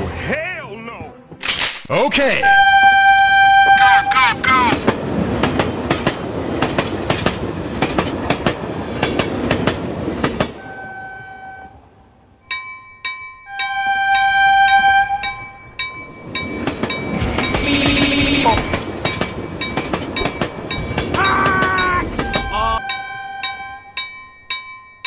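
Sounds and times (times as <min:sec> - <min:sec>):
multi-tone train horn blasts: 0:02.4 - 0:04.2, 0:10.6 - 0:12.0, 0:13.5 - 0:15.6, 0:17.2 - 0:18.8, 0:21.2 - 0:24.0
train wheels clattering over rail joints: 0:04.8 - 0:10.6, 0:14.2 - 0:22.6.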